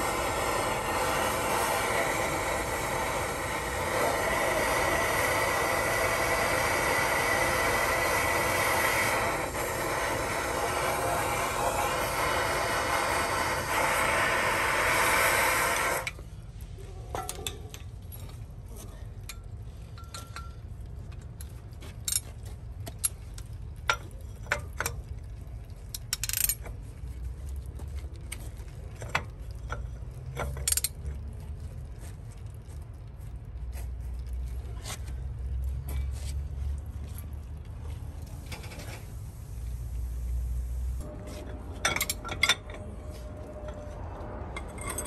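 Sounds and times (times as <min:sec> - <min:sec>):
compressed air blow gun hissing: 0:00.0 - 0:16.1, 0:39.0 - 0:41.1
low steady hum: 0:00.0 - 0:45.0
metal clinks and taps: 0:19.2 - 0:25.0.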